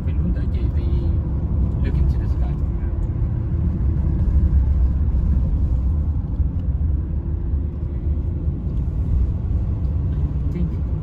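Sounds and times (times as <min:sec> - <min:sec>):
car engine and road noise: 0:00.0 - 0:11.0.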